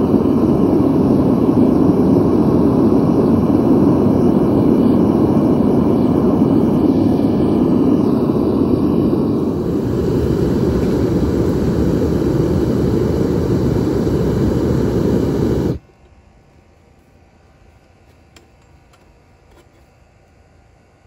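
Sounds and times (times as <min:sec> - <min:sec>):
furnace burner flame rushing: 0:00.0 - 0:15.8.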